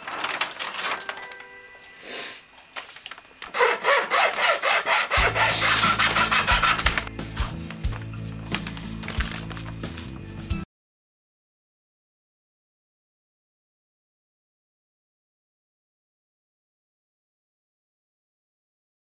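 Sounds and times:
paper rustling: 0.0 - 1.6, 2.7 - 4.5, 5.2 - 10.4
hacksaw cutting wood: 3.5 - 7.1
background music: 4.6 - 10.7.

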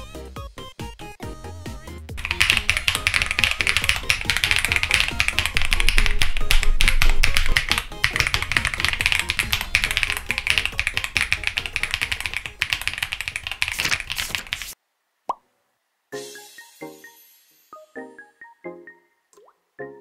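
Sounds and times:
background music: 0.0 - 12.9, 16.1 - 20.0
mechanical keyboard typing: 2.2 - 14.8.

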